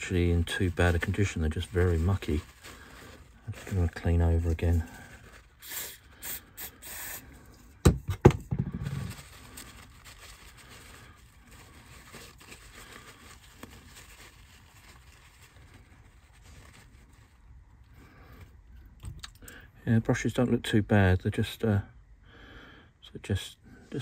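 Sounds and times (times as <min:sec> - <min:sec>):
tissue rubbing and rustling: 0:00.0 - 0:06.1, 0:08.9 - 0:17.8.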